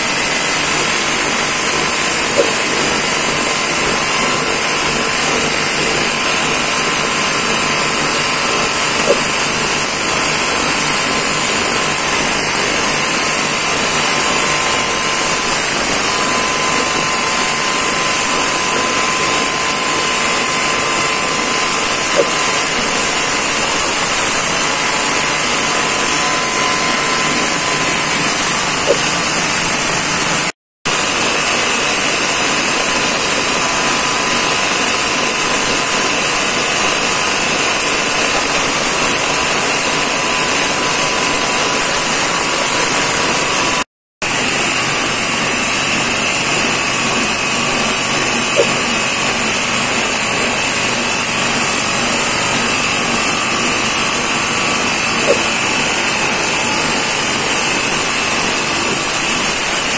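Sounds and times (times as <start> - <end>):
grinding machine engine running: 0.0 - 59.9.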